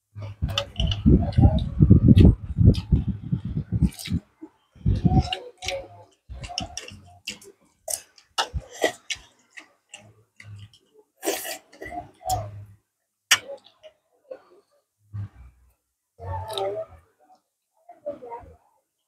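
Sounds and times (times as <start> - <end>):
chewing and slurping soup: 5.2 - 12.4.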